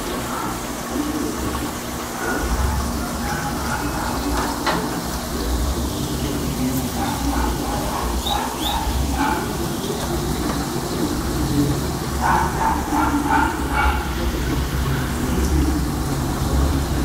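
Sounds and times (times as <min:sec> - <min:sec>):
aquarium filter bubbling: 0:00.0 - 0:17.0.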